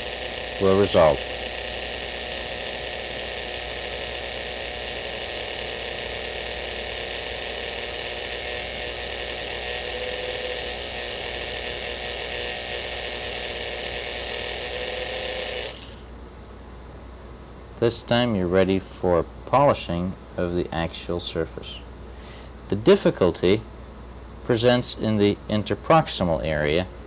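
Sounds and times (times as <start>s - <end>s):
dental handpiece whirring: 0.0s - 16.1s.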